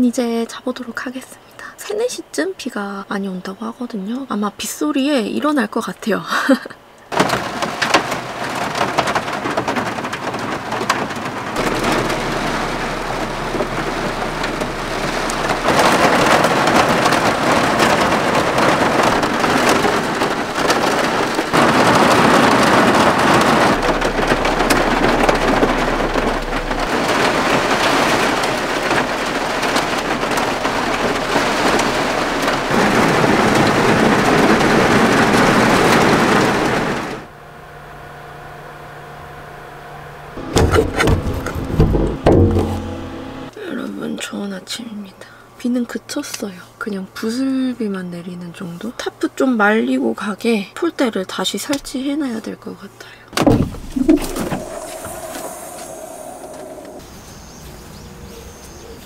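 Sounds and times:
heavy rain on a vehicle: 7.1s - 37.3s, 40.4s - 43.5s, 53.4s - 57.0s.

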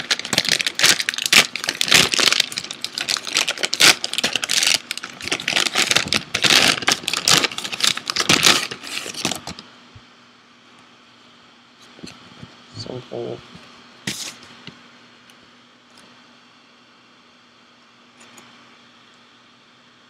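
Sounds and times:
package wrapping crinkling and tearing: 0.0s - 9.6s.

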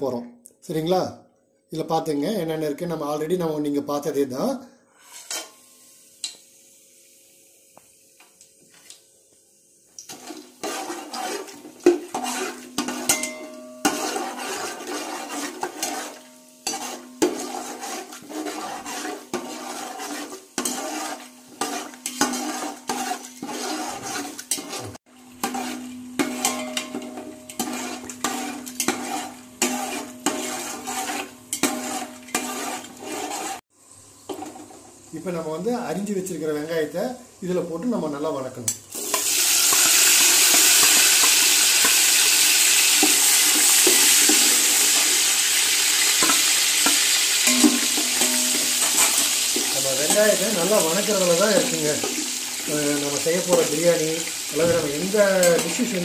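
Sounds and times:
spoon scraping a steel pot: 5.0s - 5.7s, 10.1s - 33.6s, 39.1s - 45.2s, 46.0s - 54.0s, 55.1s - 56.0s.

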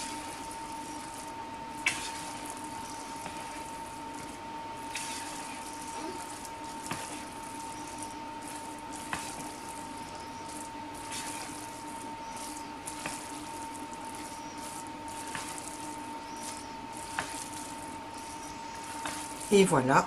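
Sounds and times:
spatula stirring thick risotto: 0.0s - 19.8s
faint steady hum: 0.0s - 20.0s.

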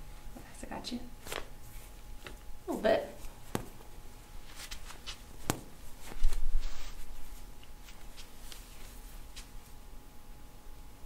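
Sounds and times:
dull thump with rustle: 3.5s - 3.9s, 5.4s - 6.4s.

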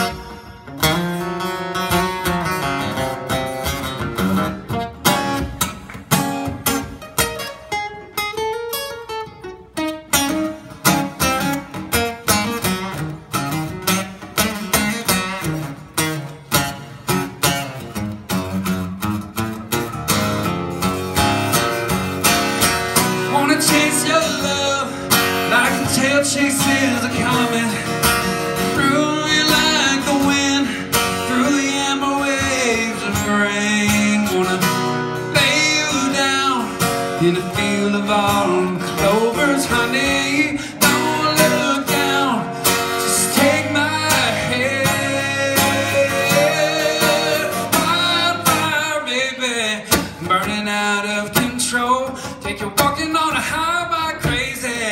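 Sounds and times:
acoustic guitar strummed hard: 0.0s - 54.9s
man singing long bending notes: 35.4s - 52.6s.

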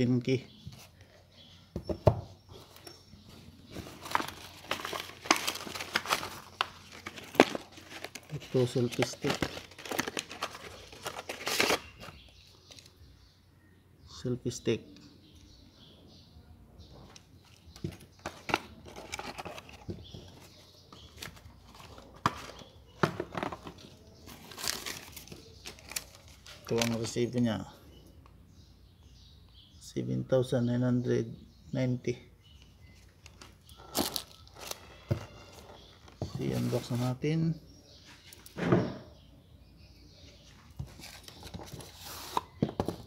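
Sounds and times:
packaging rustling: 3.6s - 12.9s, 17.5s - 22.6s, 23.2s - 27.1s, 33.3s - 37.0s
plastic bag crinkling and rustling: 3.7s - 12.1s.

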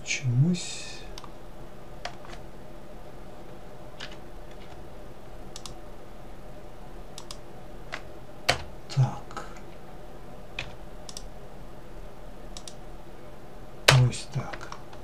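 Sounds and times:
faint low hum: 0.0s - 15.0s
mouse and keyboard clicks: 7.2s - 7.4s, 12.6s - 12.8s.

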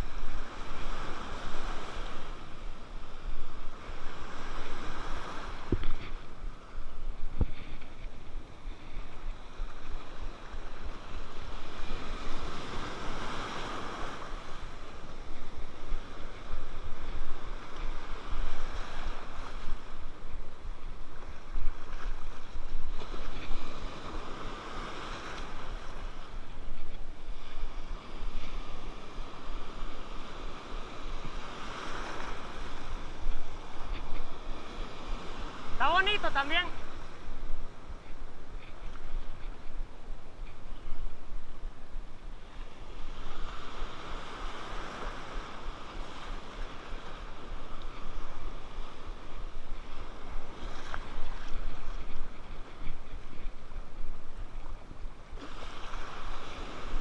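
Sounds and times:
wind buffeting microphone: 0.0s - 36.2s
surf washing and breaking: 0.0s - 57.0s.

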